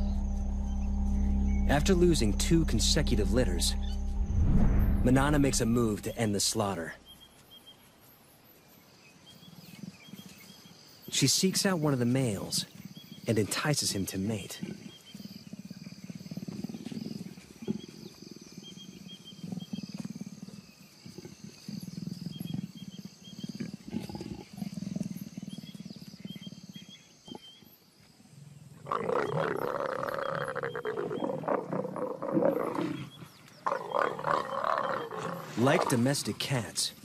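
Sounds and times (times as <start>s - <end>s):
leopards growling: 12.8s - 27.6s, 28.6s - 37.0s
loud leopard snarl: 14.6s - 27.6s, 28.8s - 36.4s.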